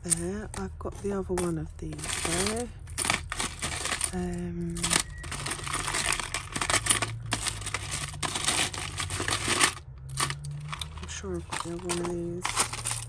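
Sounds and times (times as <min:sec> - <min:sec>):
jewellery clinking and jangling: 0:00.0 - 0:13.0.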